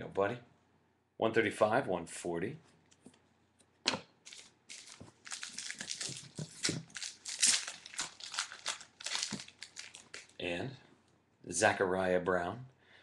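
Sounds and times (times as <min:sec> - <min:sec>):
cards and plastic holders rustling: 0:03.9 - 0:10.4.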